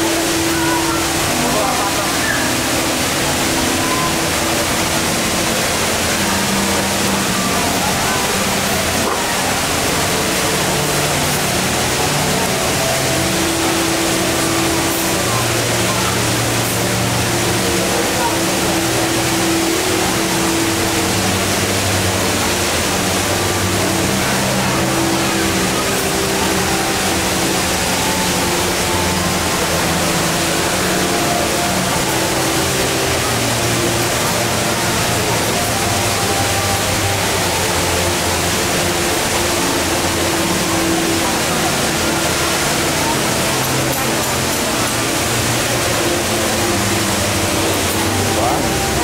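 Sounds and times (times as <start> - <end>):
faint indistinct voices: 0.0 - 49.0
waterfall crashing into pool: 0.0 - 49.0.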